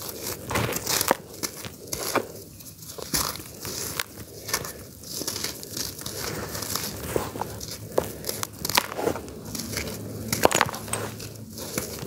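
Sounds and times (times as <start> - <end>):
hands crunching charcoal: 0.0 - 12.0.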